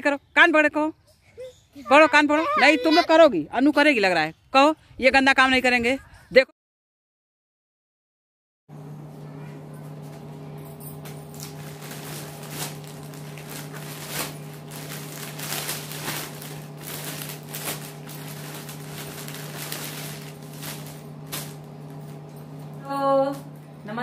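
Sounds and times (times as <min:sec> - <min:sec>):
low hum: 0:08.8 - 0:24.0
plastic bags rustling and crinkling: 0:11.0 - 0:22.9.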